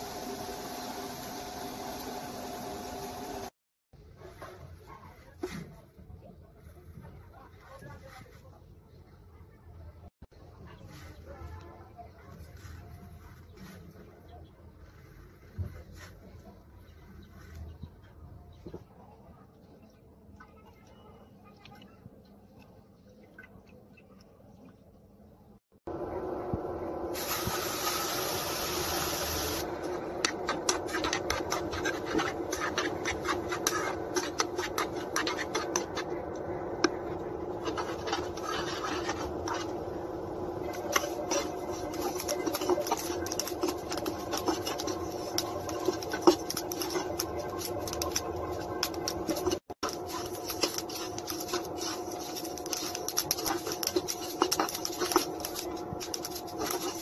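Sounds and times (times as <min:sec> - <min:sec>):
seeds crackling and popping in pan: 0:27.2 - 0:57.0
spatula scraping: 0:28.6 - 0:57.0.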